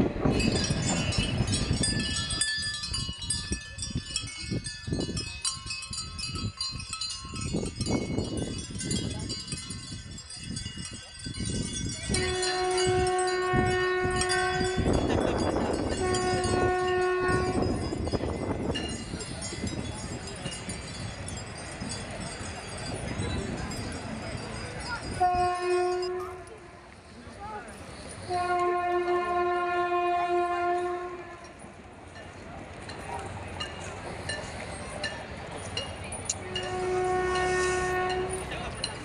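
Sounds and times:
passing train rumble: 0.0 - 39.0
bells jingling: 0.2 - 29.4, 31.4 - 39.0
train horn blasts: 12.1 - 17.8, 25.2 - 26.8, 28.2 - 31.6, 36.4 - 38.7.

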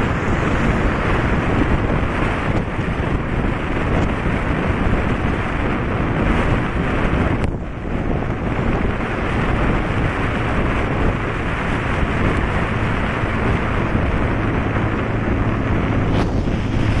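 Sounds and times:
road and engine noise: 0.0 - 17.0
wind rushing over microphone: 0.0 - 17.0
short swish: 16.0 - 17.0.

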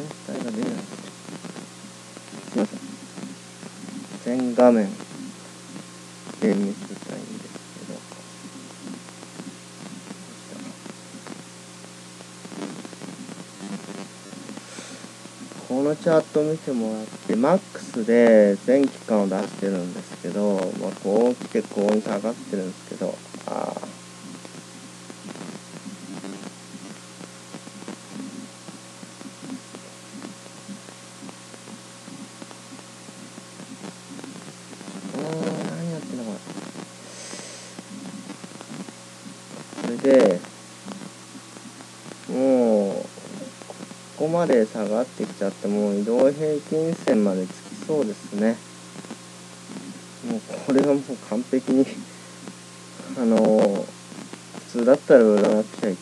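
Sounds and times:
electrical hum and hiss: 0.0 - 56.0
faint irregular clicks: 5.0 - 15.6, 23.3 - 42.4.

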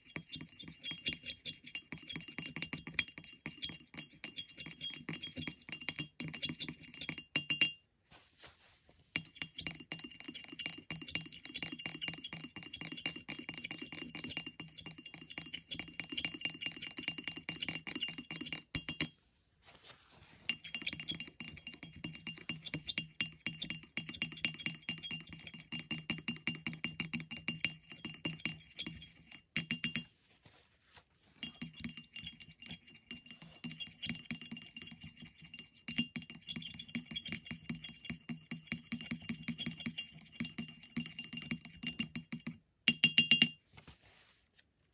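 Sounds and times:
metal tool scraping ceramic: 0.0 - 7.8, 9.1 - 19.2, 20.4 - 30.1, 31.4 - 43.6.

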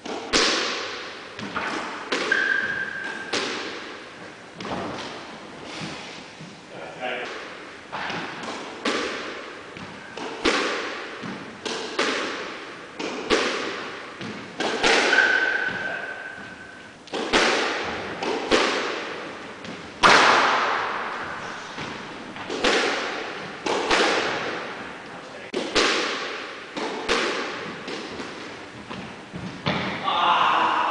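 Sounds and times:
squash ball hits echoing: 0.0 - 5.3, 7.3 - 24.9, 25.5 - 30.9
high shoe squeak: 2.3 - 3.3.

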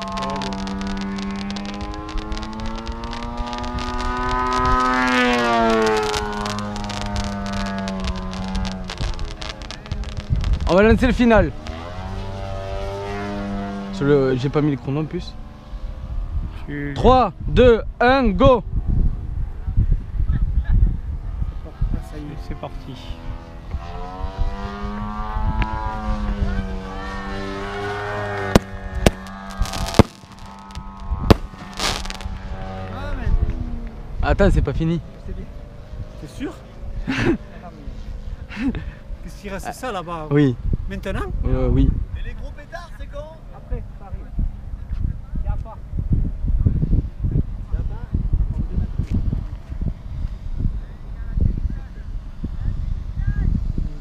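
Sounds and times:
model plane engine passing: 0.0 - 10.3
sharp firework bangs: 0.0 - 11.9, 28.4 - 32.4
firework cracks: 0.0 - 12.0, 28.2 - 32.5.

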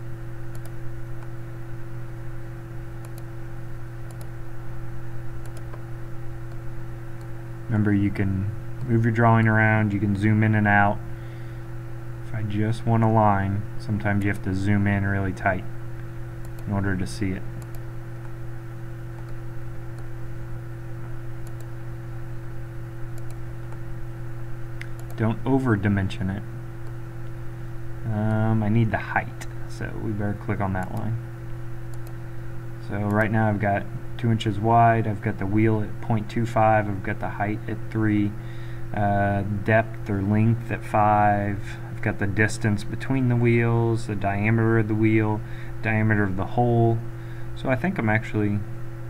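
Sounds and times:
low electrical hum: 0.0 - 49.0
computer mouse clicks: 0.5 - 1.3, 3.0 - 3.3, 4.1 - 4.4, 5.4 - 5.8, 16.4 - 16.7, 17.6 - 18.4, 19.2 - 20.1, 21.4 - 21.7, 23.1 - 23.8, 24.8 - 25.2, 31.9 - 32.2, 33.0 - 33.3.

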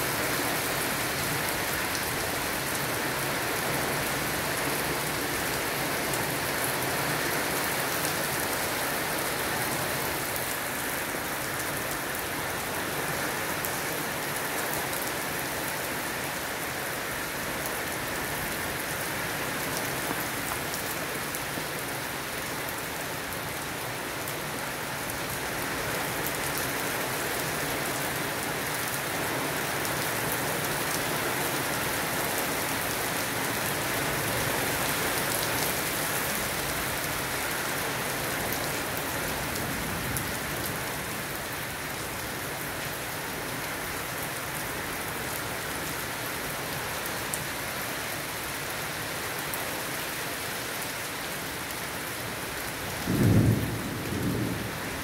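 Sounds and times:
steady rain: 0.0 - 55.0.

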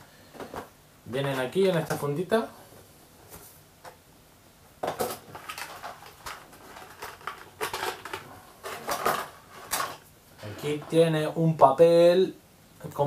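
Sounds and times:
rustling clicks and knocks: 4.8 - 10.1.

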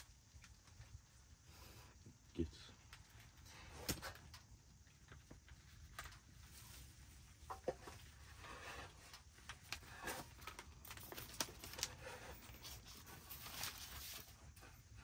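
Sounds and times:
paper packet rustling: 9.5 - 14.5.

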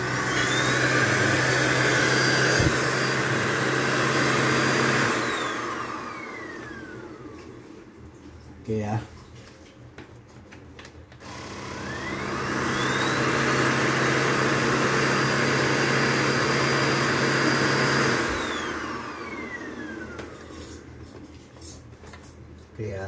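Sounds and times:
vacuum cleaner motor whining: 0.0 - 8.0, 11.2 - 21.2.

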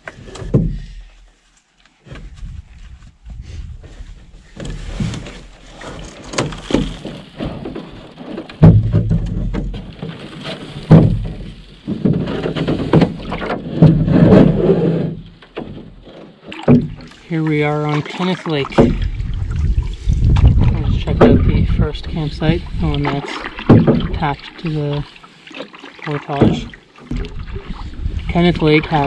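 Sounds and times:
canoe hull thumps and knocks: 0.0 - 1.1, 3.8 - 29.0
scraping on canoe hull: 2.0 - 29.0.

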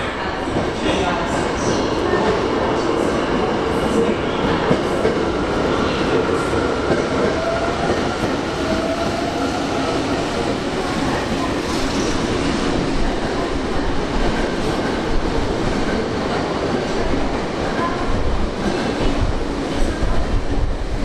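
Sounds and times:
subway train wheels rumbling on rail: 0.0 - 21.0.

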